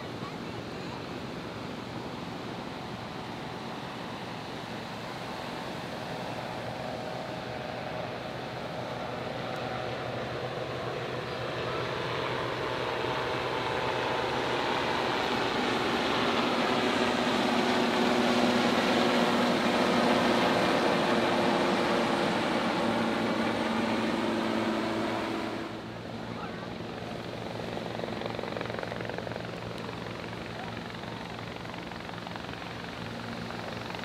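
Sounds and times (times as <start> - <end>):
helicopters flying past: 0.0 - 34.0.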